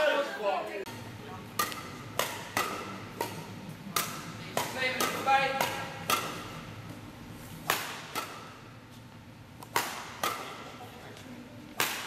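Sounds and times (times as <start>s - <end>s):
sharp echoing cracks: 11.8s - 12.0s.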